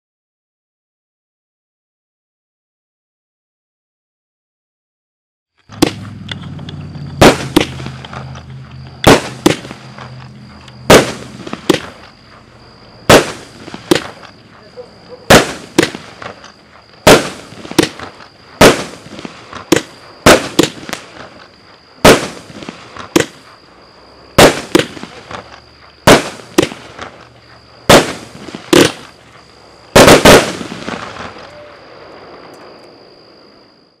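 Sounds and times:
firework bangs: 5.7s - 32.8s.

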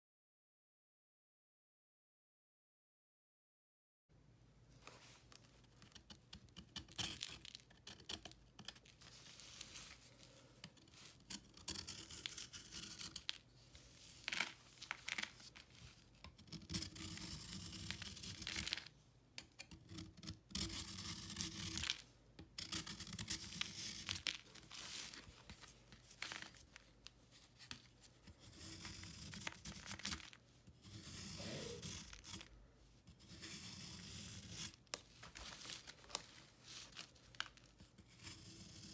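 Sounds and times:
knife scraping a chalky block: 5.8s - 14.3s, 15.8s - 18.9s, 19.6s - 21.9s, 22.6s - 24.2s, 28.3s - 30.2s, 30.8s - 34.8s, 37.9s - 38.9s.

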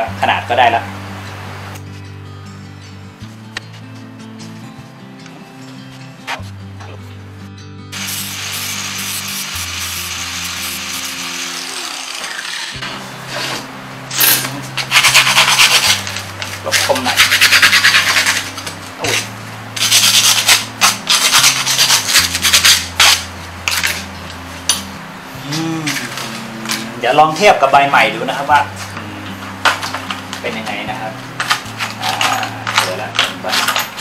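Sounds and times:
sandpaper rasping on metal: 8.0s - 13.6s, 14.8s - 23.3s
angle grinder grinding steel: 8.0s - 24.0s.

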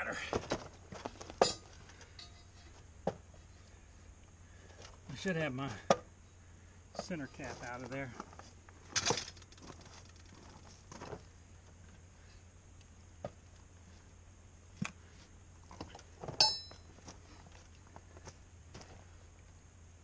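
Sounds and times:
metallic clinks: 1.4s - 2.7s, 16.4s - 16.9s.

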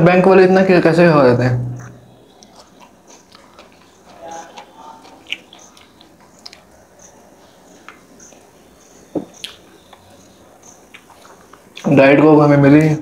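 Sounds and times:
person chewing food: 1.7s - 11.9s.

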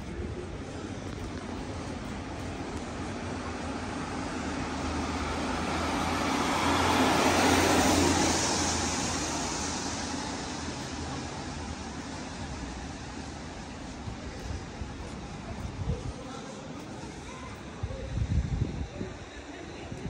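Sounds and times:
traffic: 0.0s - 20.0s
vehicle passing close by: 4.6s - 12.4s.

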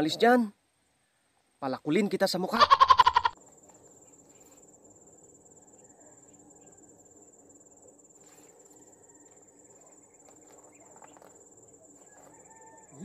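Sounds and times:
high-pitched insect trill: 2.5s - 13.0s.

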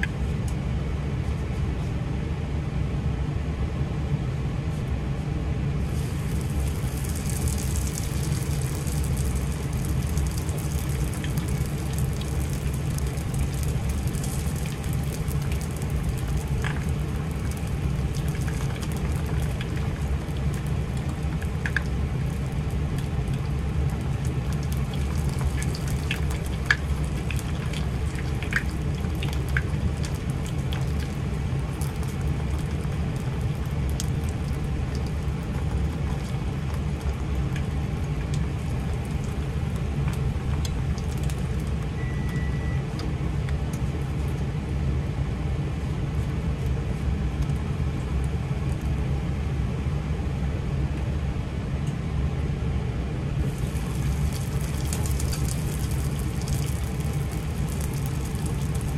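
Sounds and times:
constant low hum: 0.0s - 58.9s
spring roll sizzling in oil: 5.8s - 33.0s, 53.4s - 58.9s
oil popping and crackling: 5.8s - 41.9s, 53.4s - 58.9s.

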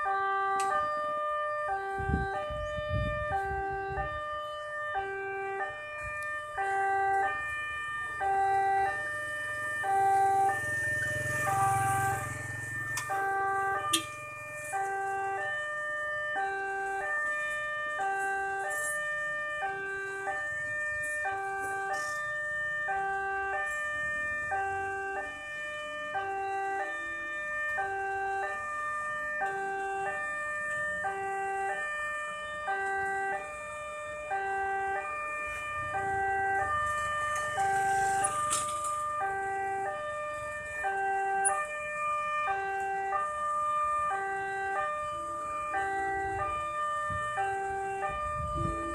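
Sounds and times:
level crossing two-note alarm: 9.8s - 17.4s.

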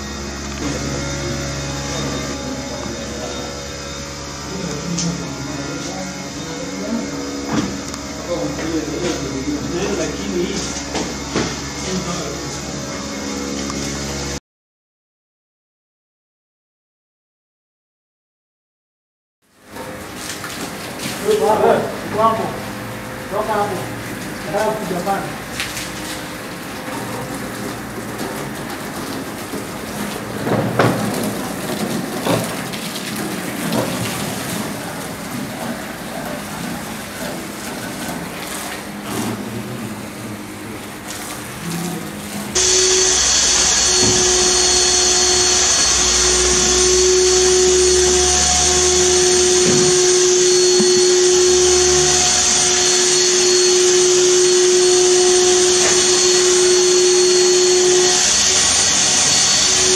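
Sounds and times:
water spraying from a hose: 19.7s - 59.9s
motor-driven machine hissing: 40.0s - 59.9s.

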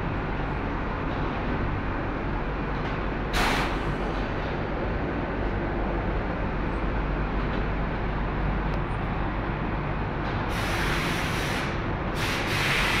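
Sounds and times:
equipment hum and extraction rush: 0.0s - 13.0s
compressed air hissing bursts: 3.4s - 3.8s, 10.5s - 13.0s.

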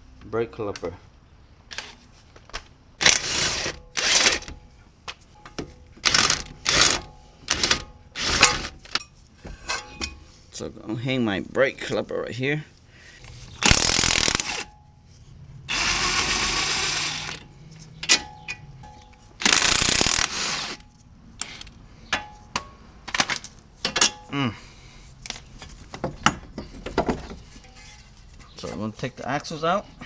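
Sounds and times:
metallic clicks and clanks of parts: 3.9s - 10.2s, 17.3s - 24.4s, 25.2s - 28.8s.

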